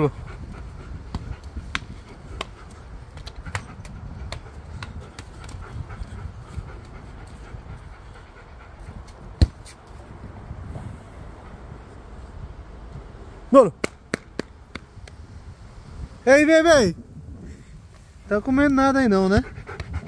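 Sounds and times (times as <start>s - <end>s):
dog panting: 0.0s - 9.4s, 19.0s - 20.0s.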